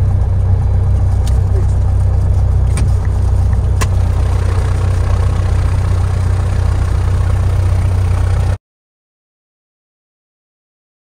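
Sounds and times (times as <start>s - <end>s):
aircraft piston engine humming: 0.0s - 8.6s.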